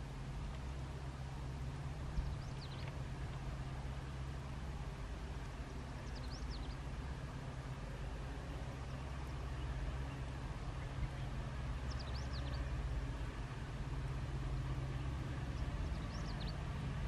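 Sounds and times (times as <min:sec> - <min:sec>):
diesel locomotive engine drone: 0:00.0 - 0:17.0
bird chirps: 0:11.9 - 0:12.6.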